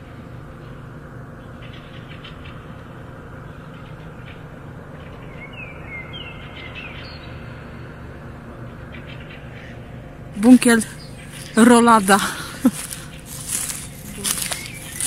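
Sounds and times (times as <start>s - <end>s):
birds chirping: 10.4s - 15.0s.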